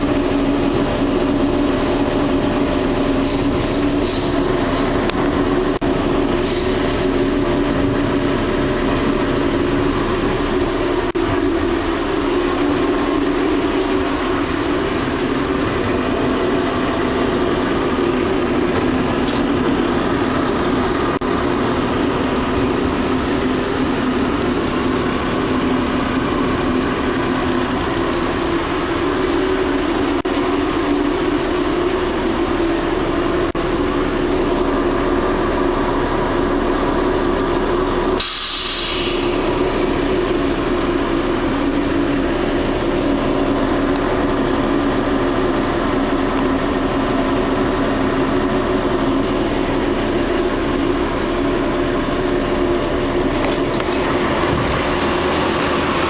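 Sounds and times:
train running hum: 0.0 - 56.0
hiss of released air: 38.2 - 39.4.

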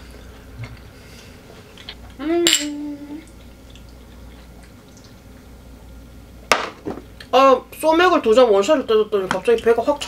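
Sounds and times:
hum-like vocal tone: 2.0 - 3.4
glassware clink: 2.4 - 2.8.

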